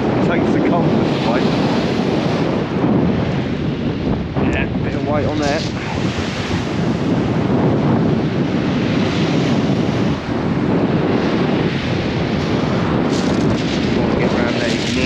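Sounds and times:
wind buffeting microphone: 0.0 - 15.0
waves breaking on shingle: 5.1 - 6.7, 12.4 - 15.0.

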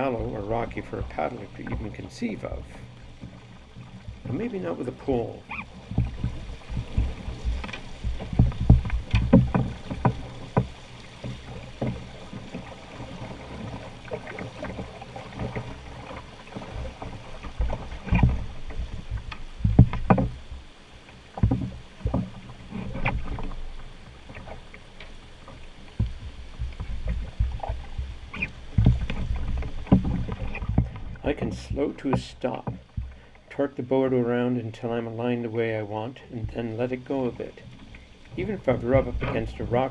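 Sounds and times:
river water rushing against hull: 0.0 - 39.9
wooden pole knocking on rocks: 5.9 - 12.0, 19.2 - 20.4, 26.0 - 31.2.

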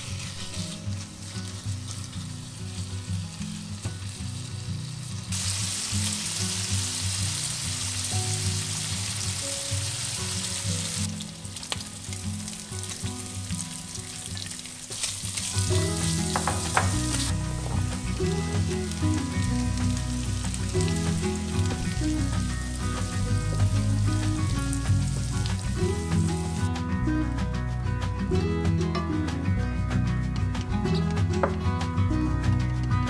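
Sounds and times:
bacon sizzling in oil: 0.0 - 26.7.

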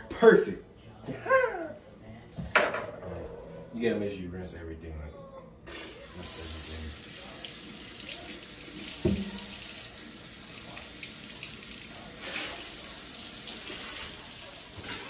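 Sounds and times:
faucet running into metal sink: 6.0 - 15.0
potatoes rinsed by hand: 6.0 - 15.0.

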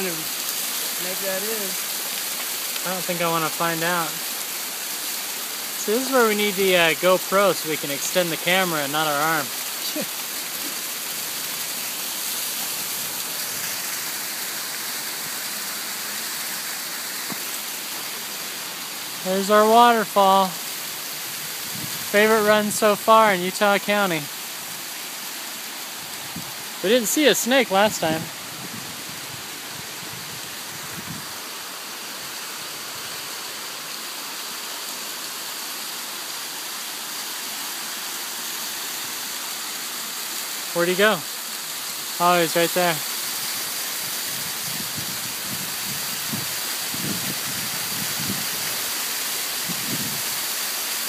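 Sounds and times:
waterfall rushing: 0.0 - 51.0.

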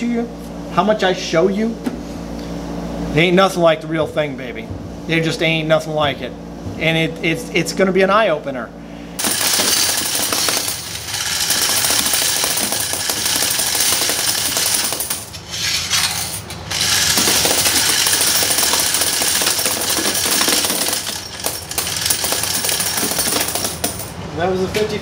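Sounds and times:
coins clattering in counting machine: 9.2 - 24.1.

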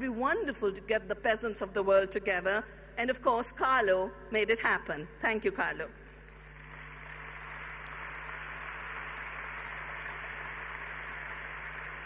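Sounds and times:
large audience applauding: 6.3 - 12.0.

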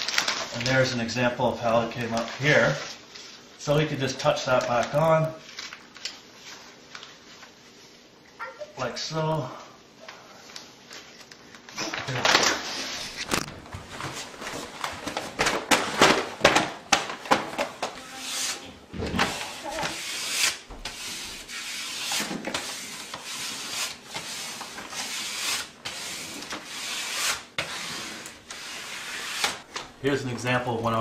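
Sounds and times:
paper sheet crackling and rustling: 0.0 - 1.0, 4.3 - 7.6, 10.5 - 20.0.

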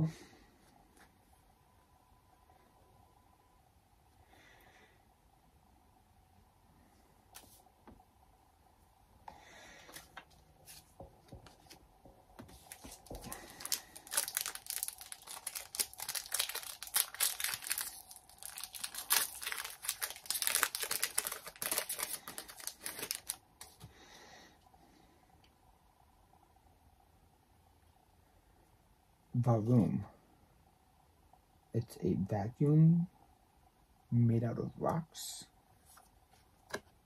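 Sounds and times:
foil wrapper crinkling and tearing: 12.6 - 23.8.

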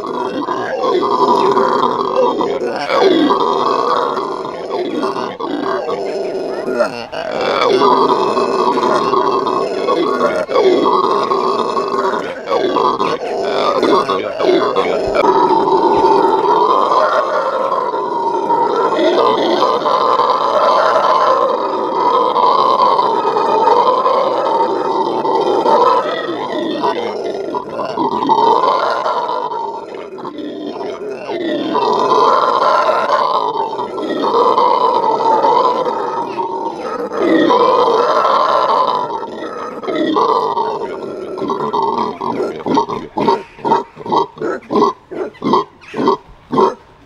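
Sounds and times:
howler monkeys howling: 0.0 - 47.0.

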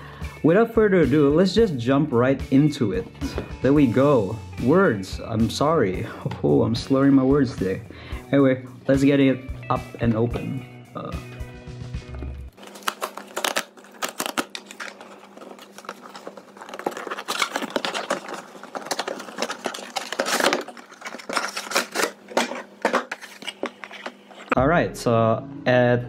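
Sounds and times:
cardboard rustling: 12.6 - 24.6.

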